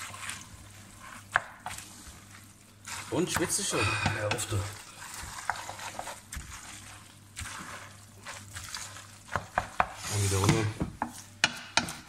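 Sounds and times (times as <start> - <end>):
pasta stirred in metal pot: 0.0 - 12.0.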